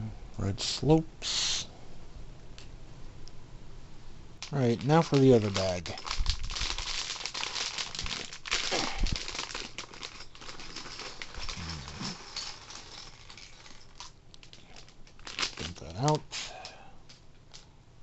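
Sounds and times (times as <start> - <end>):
plastic bag crinkling: 4.4 - 16.7
low vocal hum: 11.4 - 12.2.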